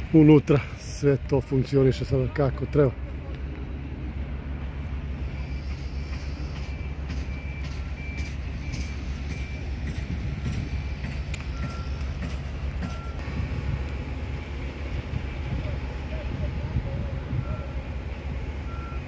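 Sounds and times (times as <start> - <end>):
low rumble: 0.0 - 19.0
reversing alarm beeping: 4.9 - 15.5, 17.2 - 19.0.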